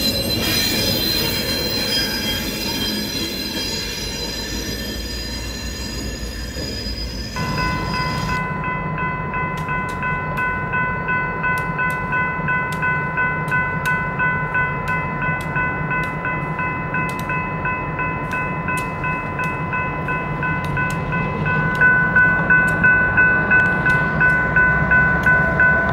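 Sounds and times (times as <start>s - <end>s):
train wheels squealing on track: 0.0s - 8.7s
crossing bell ringing: 0.0s - 25.9s
diesel locomotives rumbling: 0.0s - 25.9s.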